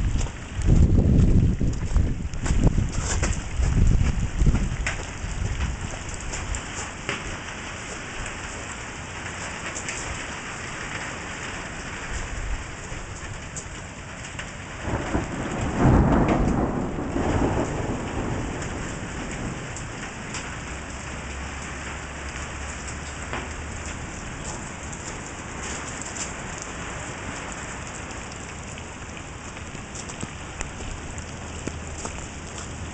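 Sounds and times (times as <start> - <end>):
thunder rolling: 0.0 - 5.9, 14.8 - 20.4
rain falling on ground: 0.0 - 32.9.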